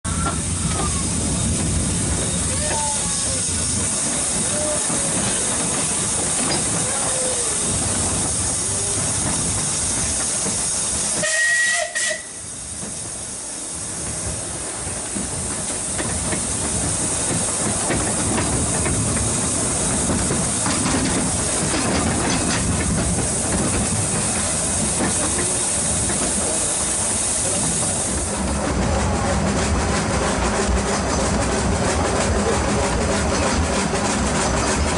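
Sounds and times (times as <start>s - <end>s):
train running on rails: 0.0s - 34.9s
steam hissing: 0.1s - 34.9s
steam whistle: 11.2s - 12.5s.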